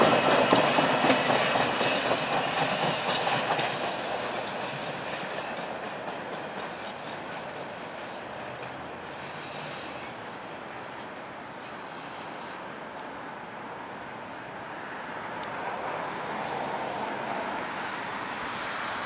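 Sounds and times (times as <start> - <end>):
subway train running on tracks: 0.0 - 19.0
train wheels squealing: 0.2 - 8.3, 9.1 - 10.4.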